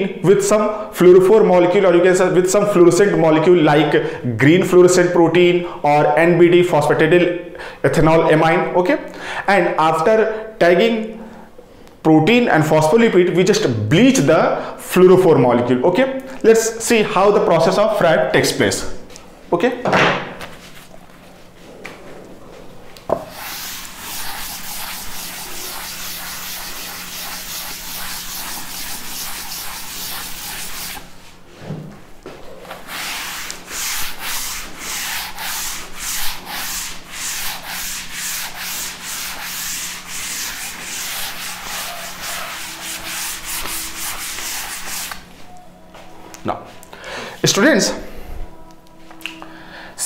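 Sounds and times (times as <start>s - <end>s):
duster wiping a chalkboard: 23.1s - 31.7s, 32.4s - 45.5s.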